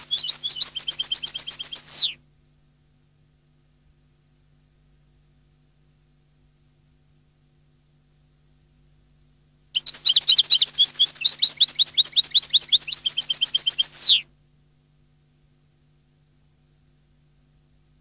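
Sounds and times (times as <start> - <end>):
goldfinch singing: 0.0 - 2.2, 9.8 - 14.2.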